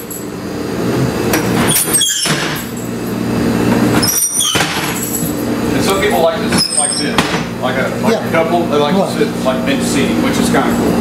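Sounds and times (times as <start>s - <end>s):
steady low hum: 4.7s - 11.0s.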